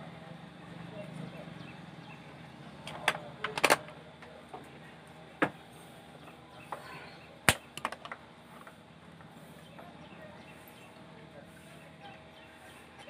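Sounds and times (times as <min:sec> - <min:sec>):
sharp clicks and knocks of handling: 0:02.8 - 0:04.7, 0:07.5 - 0:09.3.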